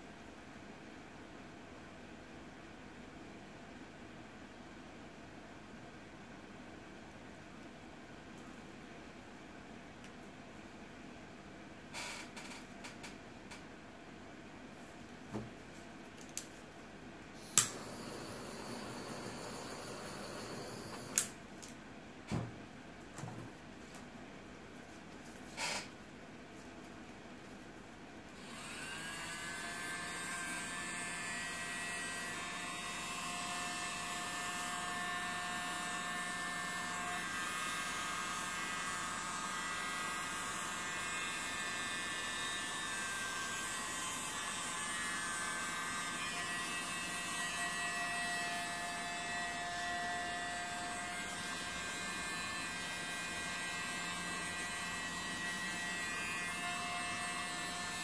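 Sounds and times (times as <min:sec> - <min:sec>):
electric blower whirring: 0:17.4 - 0:21.3.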